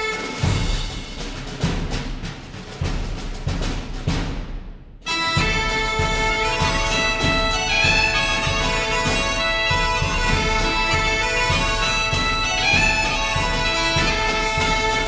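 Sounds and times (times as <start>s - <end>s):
bagpipe music: 0.0s - 1.1s, 5.0s - 15.0s.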